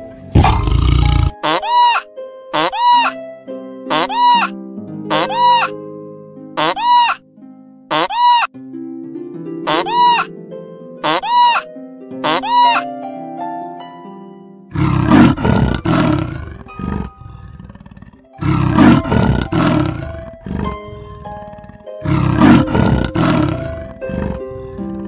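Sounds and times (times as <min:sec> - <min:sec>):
soft harp music: 0:00.0 - 0:07.9, 0:08.5 - 0:25.0
large animal roaring: 0:00.4 - 0:01.4, 0:14.7 - 0:25.0.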